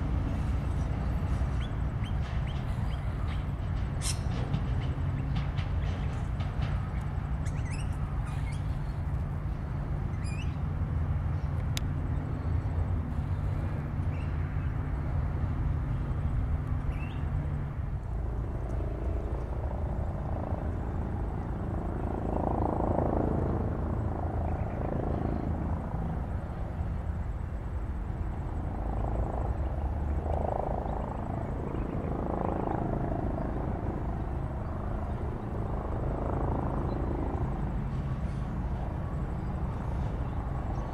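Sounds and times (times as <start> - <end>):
tram passing: 0.0 - 14.0
tram approaching rumble: 0.0 - 22.1, 33.4 - 40.9
bird chirps: 1.5 - 4.4, 6.9 - 9.0, 10.1 - 10.6, 16.9 - 17.3.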